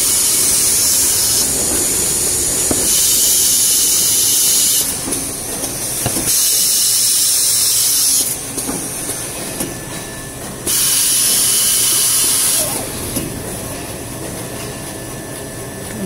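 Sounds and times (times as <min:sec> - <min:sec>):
compressed air hissing: 0:00.0 - 0:05.0, 0:05.7 - 0:08.4, 0:10.7 - 0:13.0.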